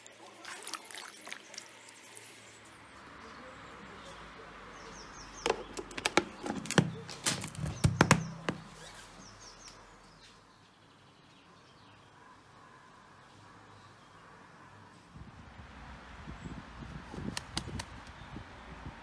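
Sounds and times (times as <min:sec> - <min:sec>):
plastic lid clicking and crackling: 0:05.4 - 0:08.7.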